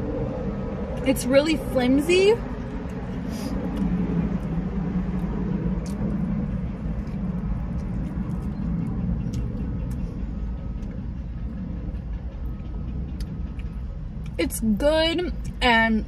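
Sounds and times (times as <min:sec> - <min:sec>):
steady low rumble: 0:00.0 - 0:16.0
eating clicks and crunches: 0:02.6 - 0:10.2.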